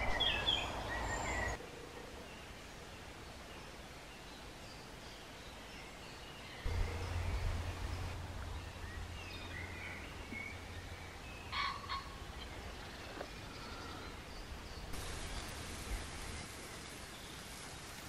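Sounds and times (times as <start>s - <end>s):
small birds chirping: 0.0s - 1.6s.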